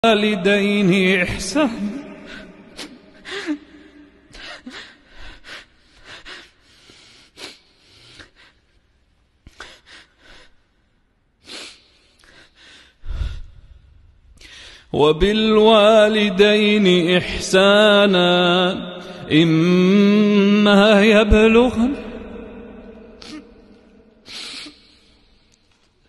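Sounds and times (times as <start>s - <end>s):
man sobbing and sniffing: 23.1s - 25.4s.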